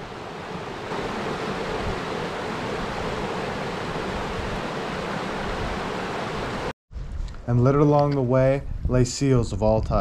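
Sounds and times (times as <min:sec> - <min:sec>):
stream rushing over rocks: 0:00.0 - 0:06.7.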